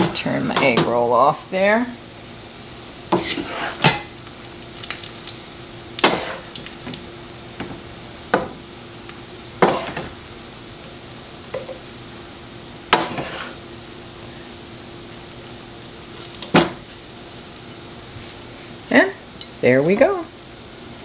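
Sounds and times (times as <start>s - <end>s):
stir fry sizzling in a frying pan: 0.0s - 21.0s
wooden spatula scraping and tossing: 3.1s - 4.1s, 9.6s - 10.2s, 12.9s - 13.6s.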